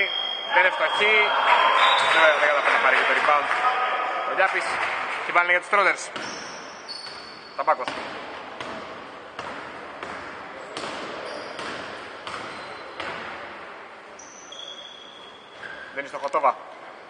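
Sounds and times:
sneaker squeaks: 0.0s - 2.6s, 6.1s - 8.0s, 10.8s - 13.4s, 14.1s - 16.3s
basketball bouncing: 6.1s - 13.5s.

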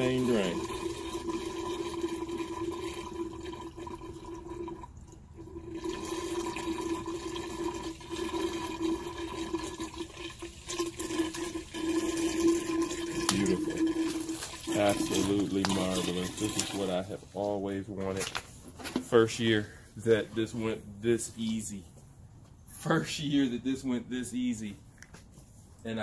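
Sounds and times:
liquid gurgling down a drain: 0.0s - 17.0s.

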